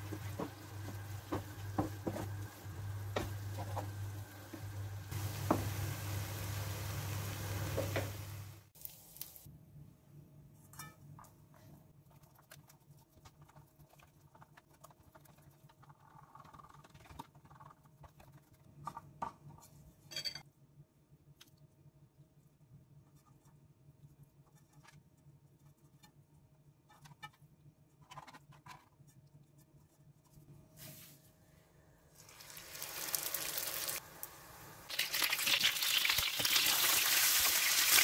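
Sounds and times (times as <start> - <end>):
spatula stirring and scraping: 0.0 - 5.7, 11.5 - 19.8
meat sizzling in a frying pan: 2.4 - 9.4, 32.2 - 38.0.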